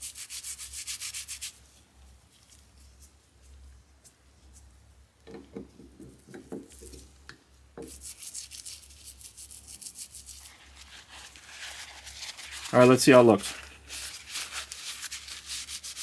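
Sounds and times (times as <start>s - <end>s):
toothbrush scrubbing plastic: 7.8s - 16.0s.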